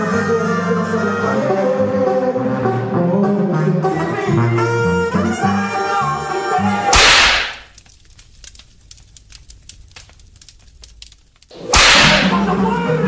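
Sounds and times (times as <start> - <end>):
background music: 0.0 - 7.0
whip-crack sound effect: 6.9 - 7.7, 11.5 - 12.5
faint crackling: 6.9 - 12.6.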